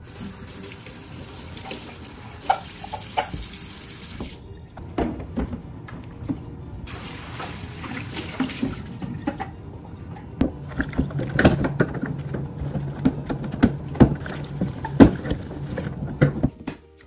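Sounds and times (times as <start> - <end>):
tap water running into sink: 0.0 - 4.4, 6.9 - 9.5.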